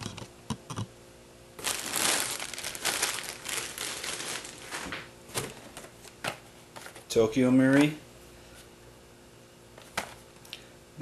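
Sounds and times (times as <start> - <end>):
plastic packaging crinkling: 1.6 - 5.6.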